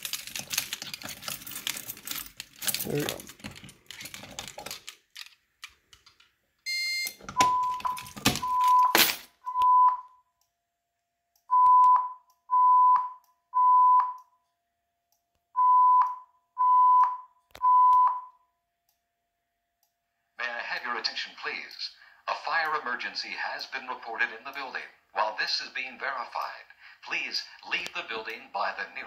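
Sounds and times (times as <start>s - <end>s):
fire alarm evacuation beeps: 6.6s - 10.3s, 11.5s - 14.4s, 15.6s - 18.6s
short high beep: 6.7s - 10.1s.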